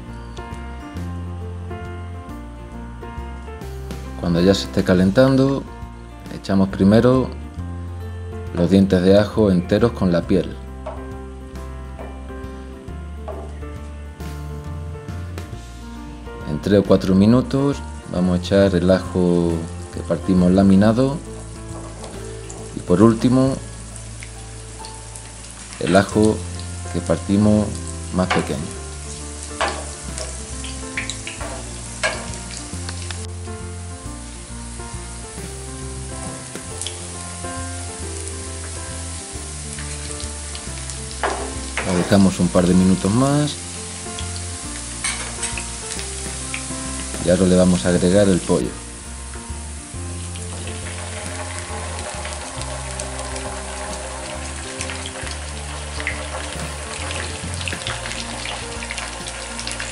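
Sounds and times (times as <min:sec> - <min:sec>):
background music: 0:00.0 - 0:59.9
oil sizzling in a frying pan: 0:17.0 - 0:59.9.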